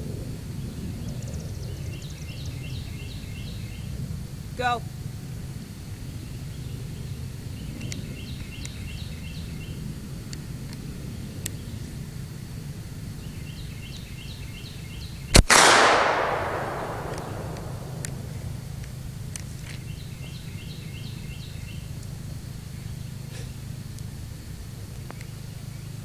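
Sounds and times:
low background noise: 0.0s - 26.0s
high chirping: 13.1s - 19.2s
rifle shot echoing: 15.3s - 19.1s.

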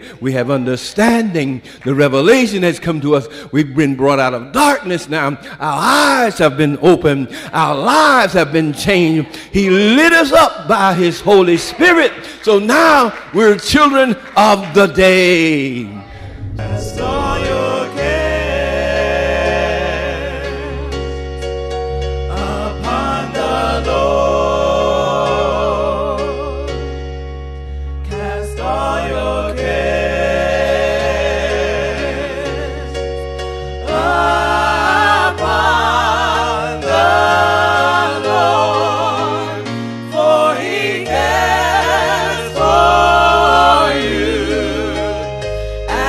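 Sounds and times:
bass: 0.0s - 46.0s
gospel voices singing: 4.0s - 27.1s, 28.0s - 46.0s
keyboard chords: 16.0s - 46.0s.

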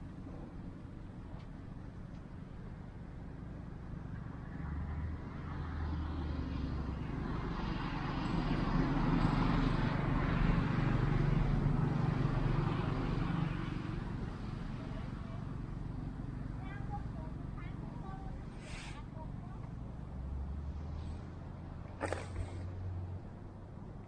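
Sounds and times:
motor engine passing by: 3.4s - 24.0s.

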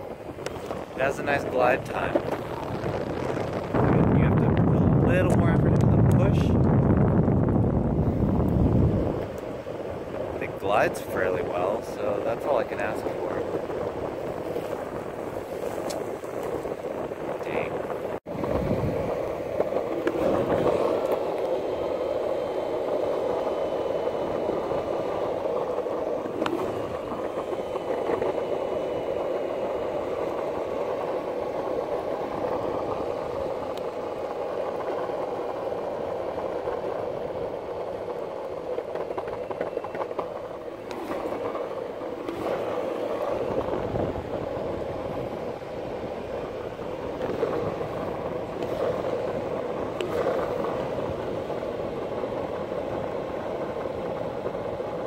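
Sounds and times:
skateboard wheels rolling on asphalt: 0.0s - 55.0s.

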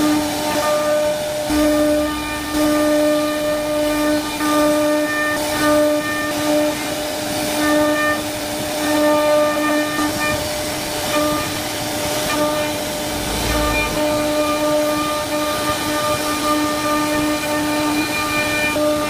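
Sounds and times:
wood router whining: 9.2s - 19.0s
router bit cutting wood: 10.1s - 16.3s.

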